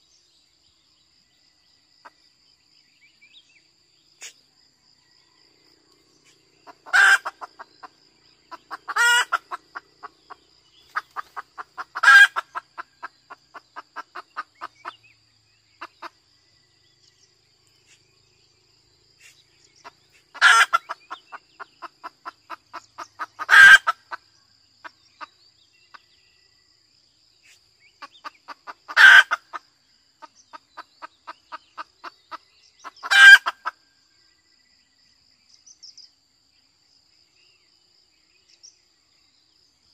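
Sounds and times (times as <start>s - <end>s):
hen clucking: 6.6s - 15.0s, 19.8s - 24.2s, 28.0s - 29.6s, 30.2s - 33.7s.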